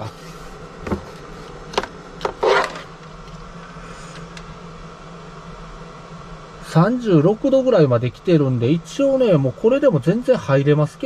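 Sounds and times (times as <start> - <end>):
low buzzing hum: 0.0 - 11.0
light knocks on plastic can: 0.8 - 1.1.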